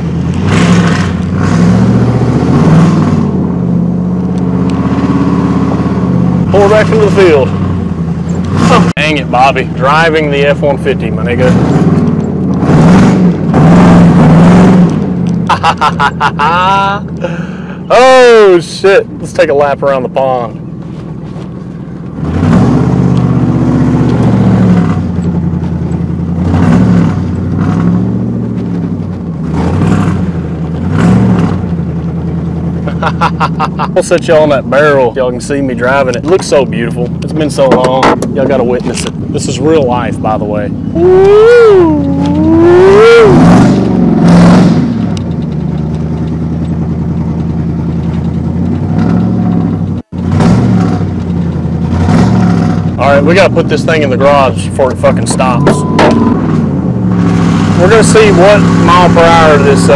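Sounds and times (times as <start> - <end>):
truck engine revving: 0.0 - 59.9.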